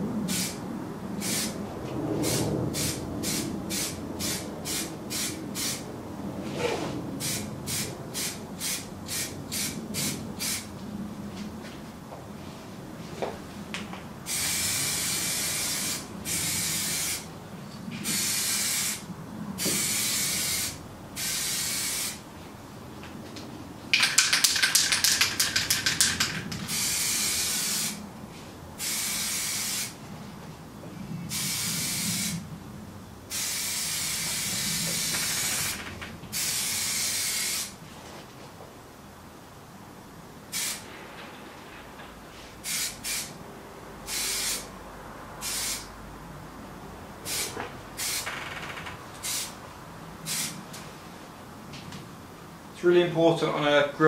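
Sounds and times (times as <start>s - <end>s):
aerosol can spraying: 14.3s - 17.2s, 19.6s - 22.2s, 24.0s - 28.0s, 28.8s - 30.0s, 33.3s - 35.7s, 36.3s - 37.8s, 40.6s - 40.8s, 42.6s - 43.3s, 44.1s - 44.7s, 45.4s - 45.9s, 49.2s - 49.6s, 50.3s - 50.6s.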